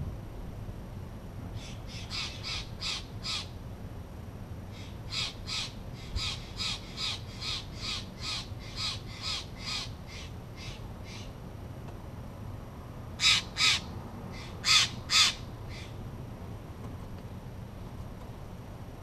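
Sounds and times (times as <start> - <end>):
jay harsh calls: 13.2 - 15.9.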